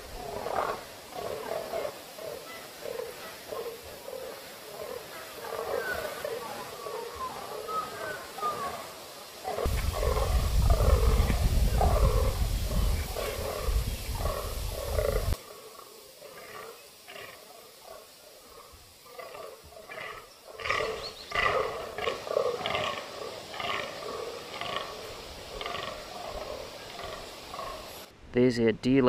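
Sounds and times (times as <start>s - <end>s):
wind rumble on microphone: 9.6s - 15.4s
deer croaking grunts: 19.2s - 27.8s.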